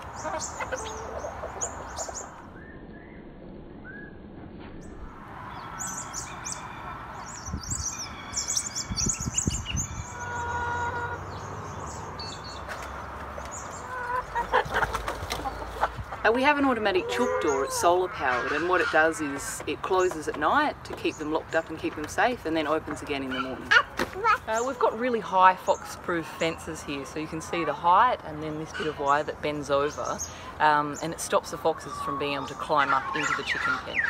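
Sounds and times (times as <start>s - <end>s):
hens clucking and calling: 0.0s - 2.4s, 10.1s - 11.4s, 13.4s - 20.4s, 31.4s - 34.0s
small birds chirping: 0.0s - 3.2s, 4.8s - 21.9s, 22.6s - 34.0s.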